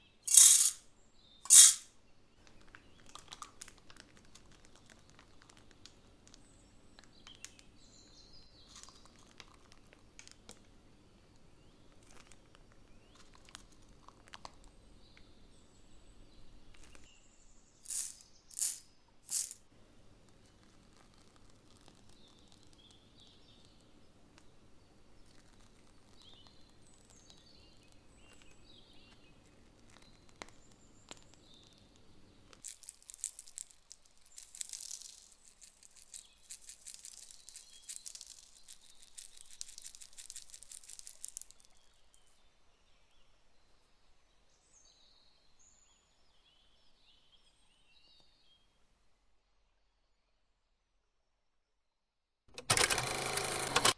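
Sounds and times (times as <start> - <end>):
sprinkles rattling: 0.3 - 0.8, 1.5 - 1.8, 17.8 - 19.6, 20.6 - 22.8, 32.6 - 41.9.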